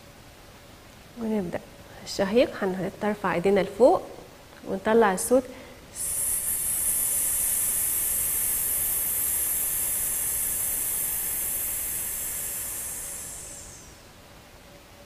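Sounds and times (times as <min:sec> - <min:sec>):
woman hissing on exhalation: 0:05.9 - 0:14.0.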